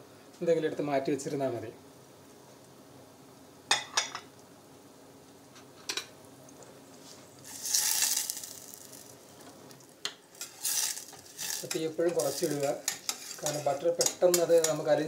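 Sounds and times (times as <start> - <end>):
spoon stirring and scraping saucepan: 7.0 - 15.0.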